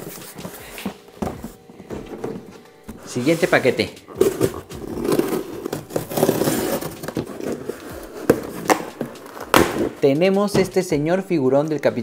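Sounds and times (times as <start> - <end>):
toy packaging rustling and crinkling: 3.1 - 9.6.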